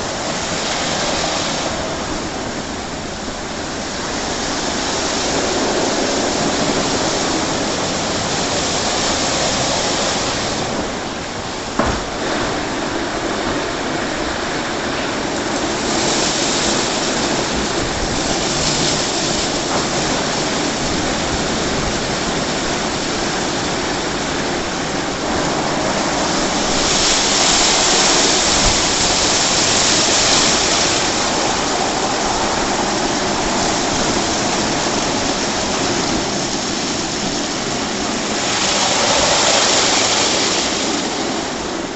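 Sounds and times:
car wash brushes and water jets: 0.0s - 41.9s
short knock: 11.8s - 12.2s.

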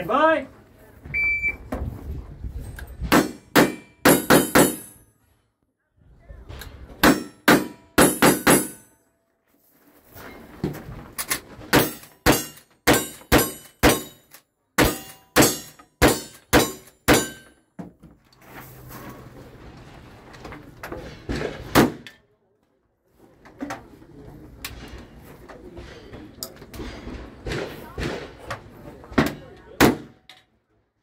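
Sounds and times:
steel targets ringing: 11.8s - 17.6s
gunshots: 21.4s - 22.1s, 26.8s - 28.5s.

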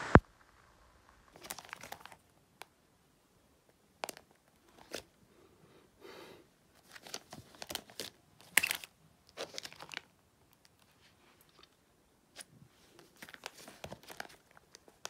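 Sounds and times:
plastic sleeve pages crinkling: 1.3s - 2.4s, 4.0s - 5.1s, 6.8s - 15.0s.

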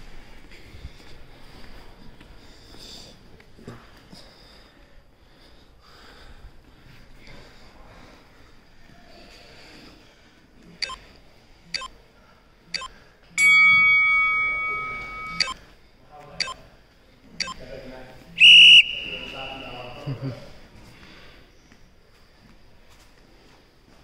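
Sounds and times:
bell-like timer tone: 12.8s - 15.6s
short electronic beeps: 12.8s - 15.6s, 18.4s - 19.9s.

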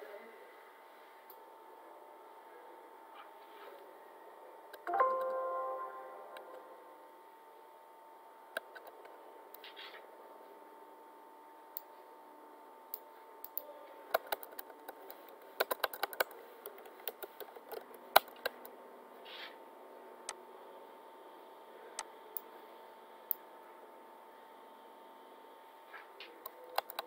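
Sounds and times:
keyboard key clicks: 15.6s - 18.6s, 26.7s - 27.0s.

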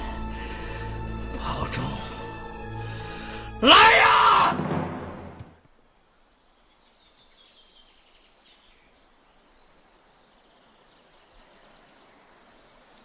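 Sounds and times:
birds chirping: 4.0s - 13.0s
low steady hiss: 4.8s - 13.0s.

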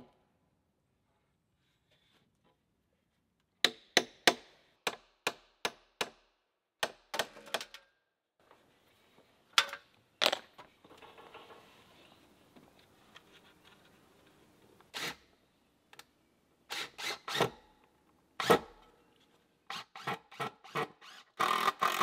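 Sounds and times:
hammer striking wooden post: 3.6s - 6.2s.

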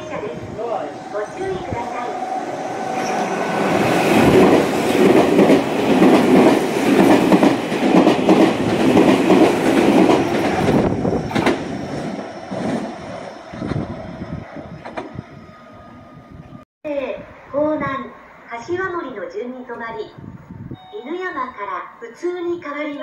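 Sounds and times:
train wheels rumbling on rails: 0.0s - 16.6s.

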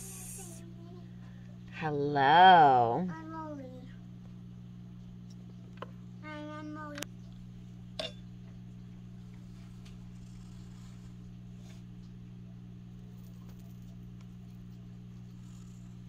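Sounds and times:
low hum: 0.0s - 16.0s
pencil scratching on paper: 9.4s - 11.3s.

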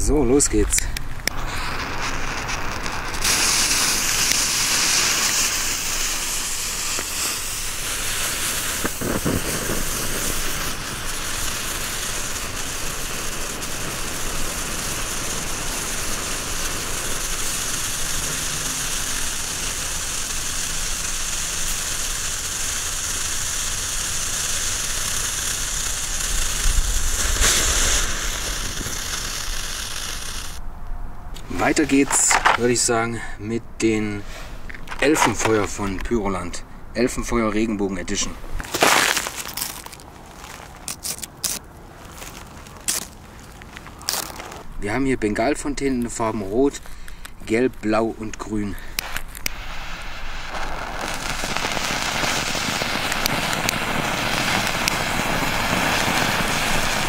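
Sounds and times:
fireworks hissing: 0.0s - 30.6s, 31.4s - 33.0s, 34.0s - 36.5s, 38.0s - 57.0s.

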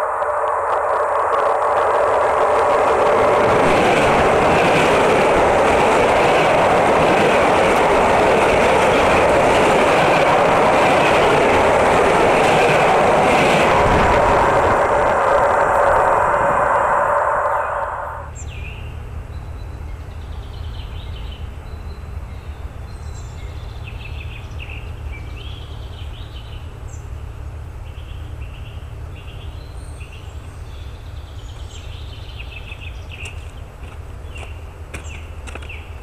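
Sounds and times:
steady low rumble: 0.0s - 25.4s
train noise: 0.0s - 36.0s.

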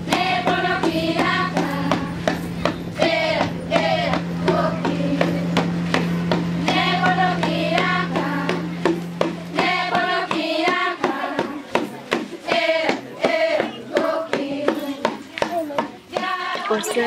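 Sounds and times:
voices singing a melody: 0.0s - 5.8s, 6.6s - 8.9s, 9.5s - 11.8s, 12.4s - 17.0s
sharp percussive strikes: 14.7s - 17.0s.

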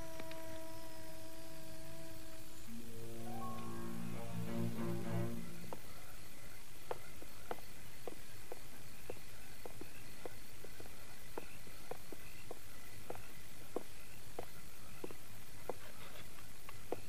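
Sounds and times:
faint high chirping: 0.0s - 17.0s
footsteps on wooden boards: 6.9s - 17.0s.

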